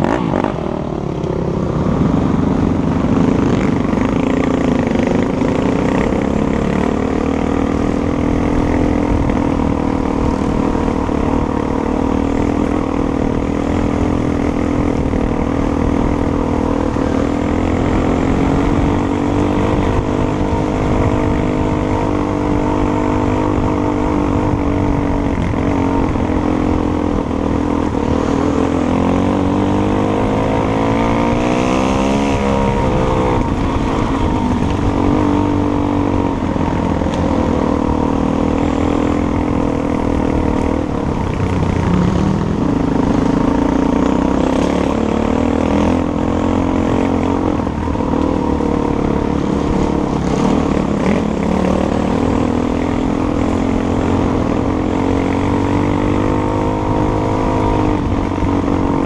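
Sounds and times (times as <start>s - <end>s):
dirt bike engine revving: 0.0s - 0.9s, 1.9s - 59.0s.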